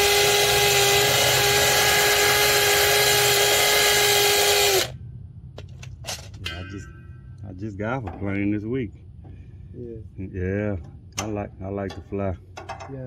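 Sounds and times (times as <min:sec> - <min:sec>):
power tool whining: 0:00.0 - 0:05.0.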